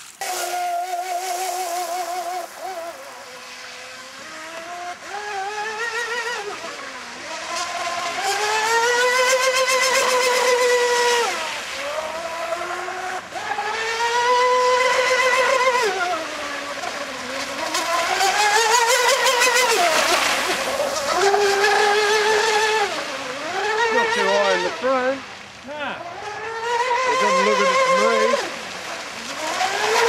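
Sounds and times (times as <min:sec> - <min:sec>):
water spray hiss: 0:00.0 - 0:04.0
high-pitched motor whine: 0:00.0 - 0:30.0.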